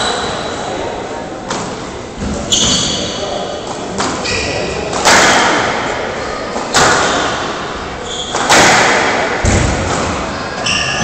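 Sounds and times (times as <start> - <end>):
squash ball smacks echoing: 4.9 - 5.9, 6.6 - 7.5, 8.3 - 10.3.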